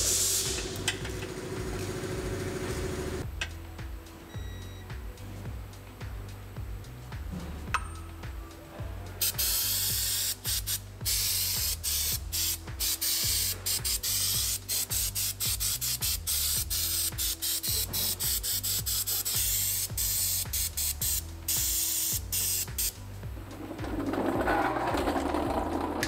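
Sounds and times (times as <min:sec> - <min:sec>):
aerosol spray can hissing: 0:00.0 - 0:01.1, 0:09.2 - 0:23.1.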